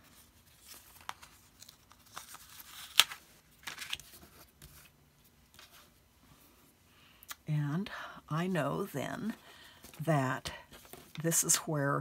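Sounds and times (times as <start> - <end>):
paper rustling: 0.0 - 4.9.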